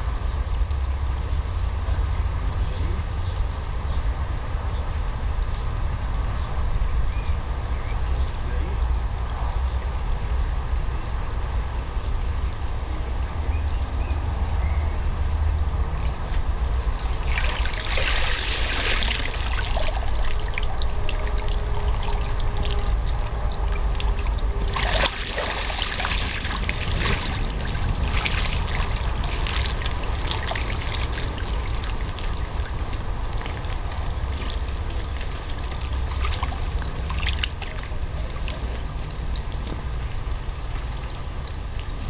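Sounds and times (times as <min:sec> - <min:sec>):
steady low rumble: 0:00.0 - 0:42.0
pool water sloshing and splashing: 0:16.0 - 0:42.0.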